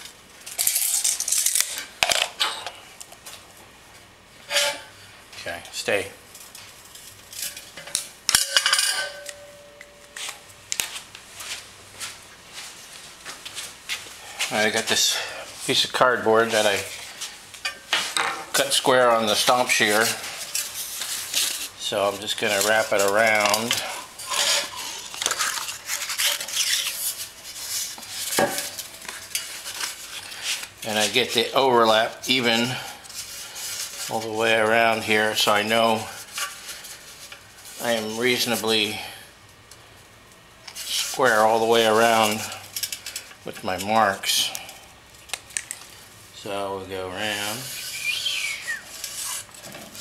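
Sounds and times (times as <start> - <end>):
metal tube clinking and ringing: 8.3 - 10.1
marker scratching on metal tube: 47.7 - 49.6.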